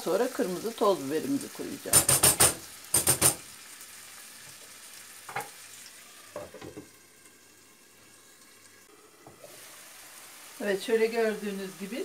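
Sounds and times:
vegetables sizzling in a frying pan: 0.0 - 12.0.

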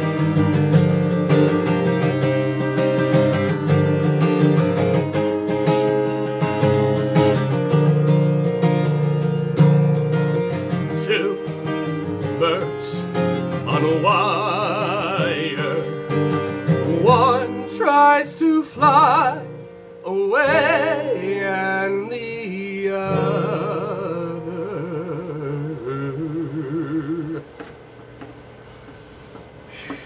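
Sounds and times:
strummed acoustic guitar: 0.0 - 27.8
man singing with vibrato: 10.7 - 27.6.

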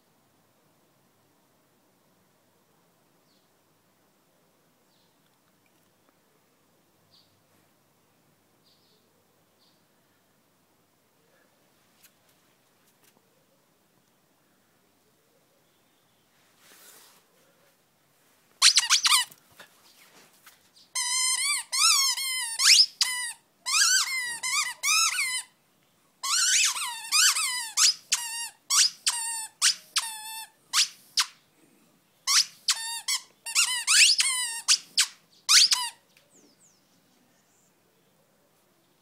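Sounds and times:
squeaky dog toy squeaking: 18.6 - 19.3, 21.0 - 25.6, 26.2 - 31.4, 32.3 - 36.0.

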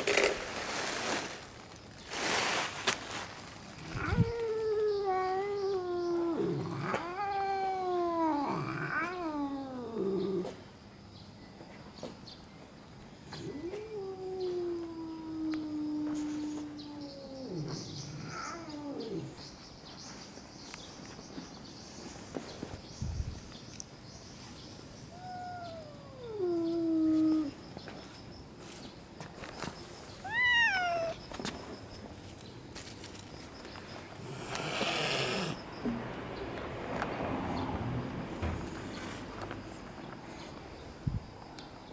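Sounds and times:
cat yowling: 3.8 - 10.4, 13.4 - 19.4, 25.1 - 27.6, 30.2 - 31.2.

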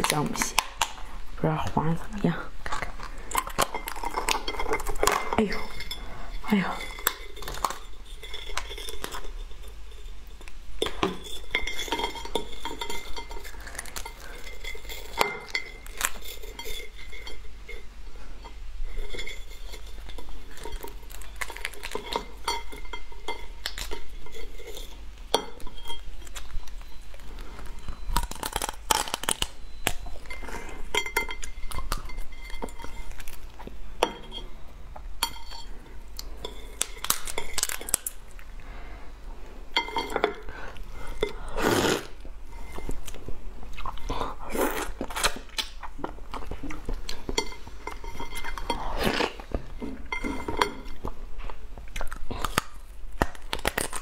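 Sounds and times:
shell pieces clinking on plate: 18.9 - 34.5.

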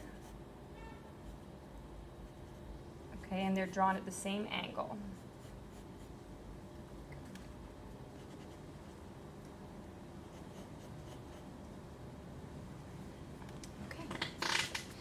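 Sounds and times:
pencil scratching on paper: 5.1 - 6.2, 10.2 - 11.5.

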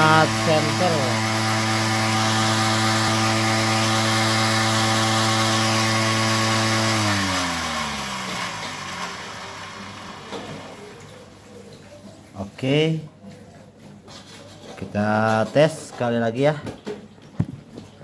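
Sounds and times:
cotton candy machine spinning: 0.0 - 11.6.

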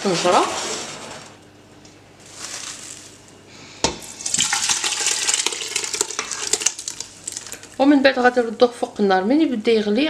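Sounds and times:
fruit and syrup splashing into pot: 3.9 - 7.8.

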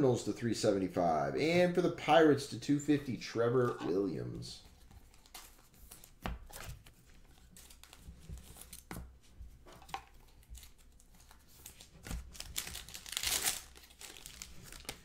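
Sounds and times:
plastic sleeves rustling: 3.6 - 15.0.

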